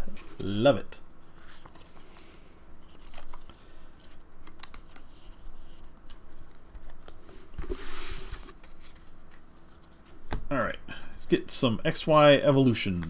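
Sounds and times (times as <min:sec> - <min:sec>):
cards clicking and snapping: 0:04.4 - 0:05.1.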